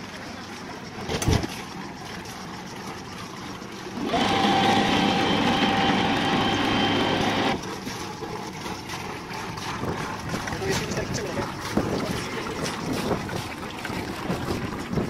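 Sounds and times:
motor whining: 0:04.0 - 0:07.6.

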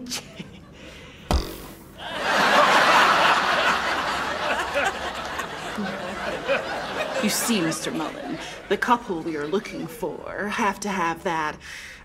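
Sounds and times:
audience laughing: 0:02.0 - 0:10.2.

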